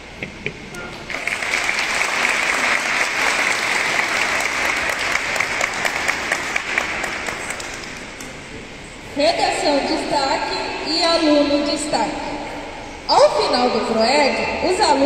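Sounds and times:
crowd applauding: 0:01.1 - 0:08.2.

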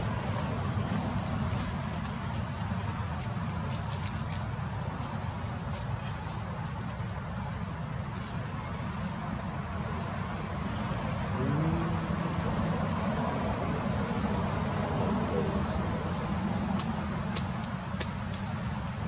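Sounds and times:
high-pitched insect drone: 0:11.2 - 0:16.6.

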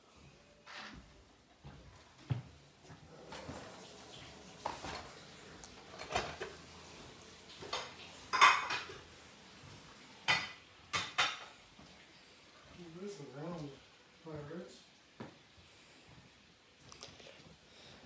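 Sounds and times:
dishes and utensils clattering: 0:03.2 - 0:09.2, 0:10.2 - 0:11.7.

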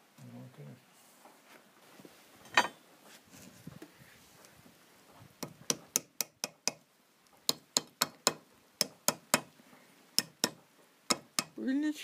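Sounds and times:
hammer tapping metal: 0:05.7 - 0:06.8, 0:10.2 - 0:11.6.

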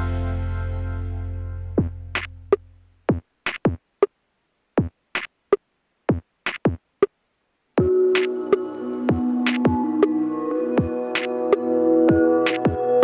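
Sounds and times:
electronic drum hits: 0:07.8 - 0:10.1.

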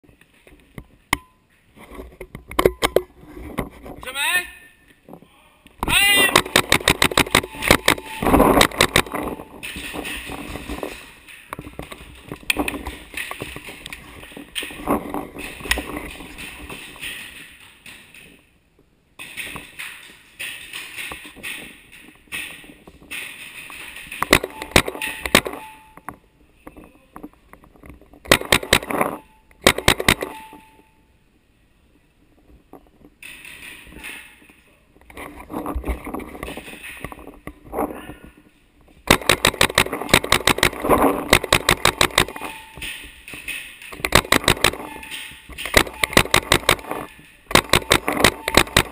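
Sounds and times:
movement noise: 0:05.0 - 0:29.4
paintball gun shots: 0:06.2 - 0:09.3, 0:28.3 - 0:29.0, 0:29.6 - 0:30.5, 0:39.1 - 0:42.3, 0:44.1 - 0:44.9, 0:45.7 - 0:46.9, 0:47.5 - 0:48.9.

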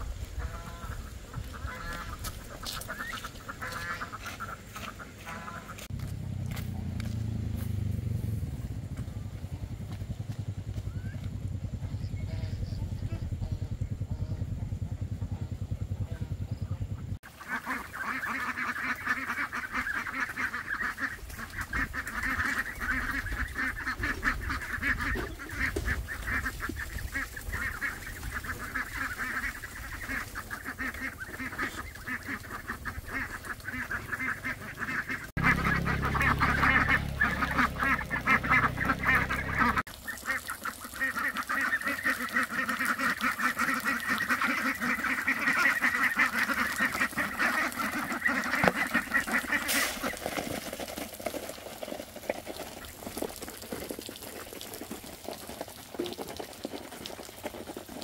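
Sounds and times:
chickens calling: 0:00.0 - 0:06.7, 0:16.2 - 0:53.5
low rumble: 0:05.8 - 0:17.2, 0:32.4 - 0:39.9.

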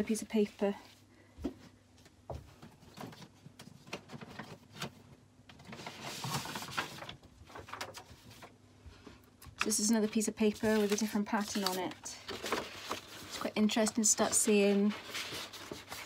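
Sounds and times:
paper rustling and sliding: 0:05.6 - 0:08.6, 0:10.1 - 0:16.0.

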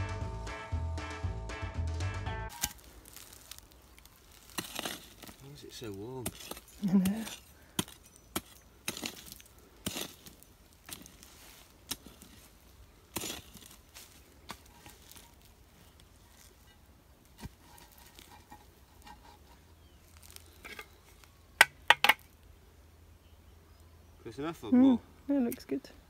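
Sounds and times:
block scraping on soil: 0:02.5 - 0:22.3.

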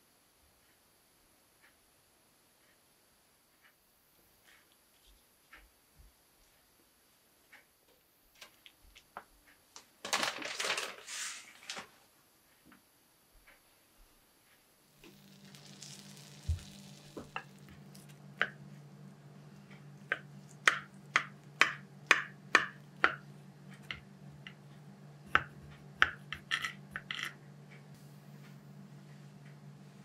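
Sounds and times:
steady low hum: 0:14.6 - 0:30.0.

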